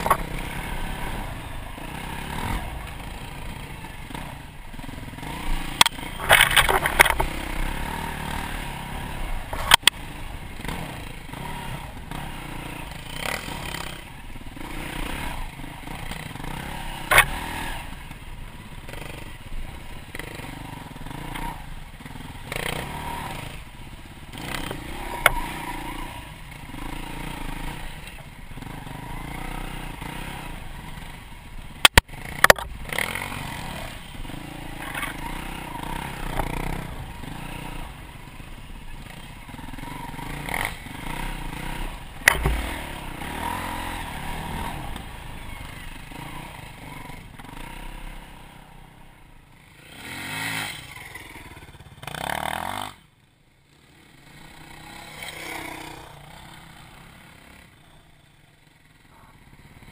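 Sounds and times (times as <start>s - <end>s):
sharp knocks over bumps: 0.0s - 0.5s, 5.7s - 7.5s, 9.4s - 10.0s, 17.0s - 17.5s, 24.4s - 25.6s, 31.8s - 32.8s, 42.2s - 43.1s
bike rattling: 0.0s - 48.5s
dirt bike engine running: 0.0s - 59.9s.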